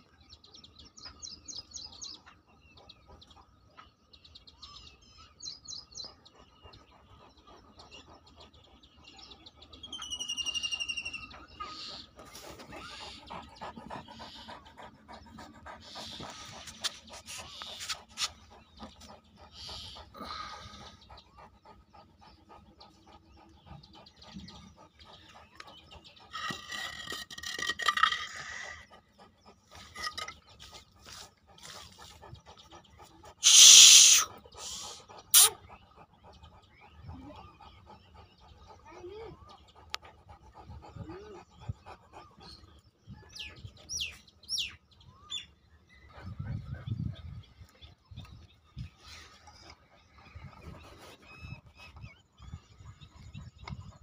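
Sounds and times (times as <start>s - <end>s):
dog panting: 0.4s - 10.0s, 10.7s - 54.0s
faint bird chirps: 9.2s - 29.1s
bird calls sweeping downward: 33.4s - 35.5s.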